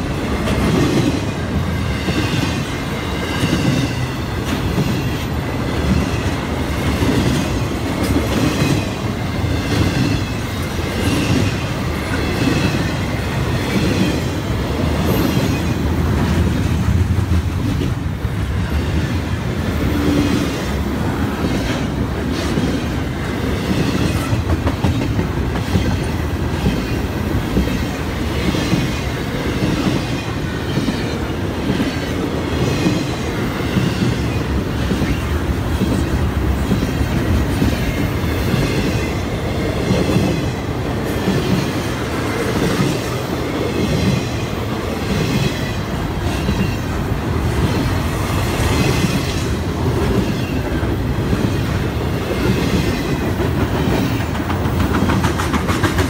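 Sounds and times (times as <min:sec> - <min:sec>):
train wheels rumbling on rails: 0:00.0 - 0:56.0
wheels clacking over rail joints: 0:52.4 - 0:56.0.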